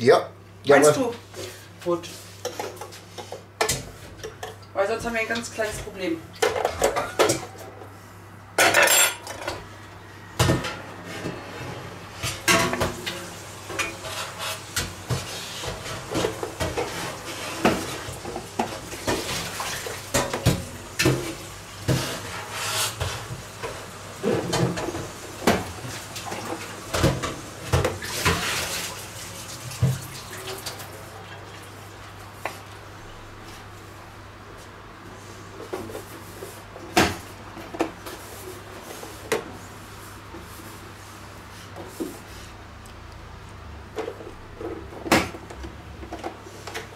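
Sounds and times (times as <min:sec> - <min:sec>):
cutlery clinking on plastic: 0:08.6 - 0:09.5.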